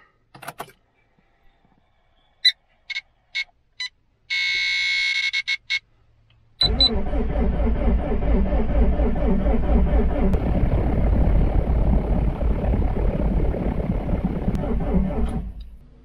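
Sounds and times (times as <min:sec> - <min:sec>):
starter motor cranking engine: 0:06.6 - 0:15.8.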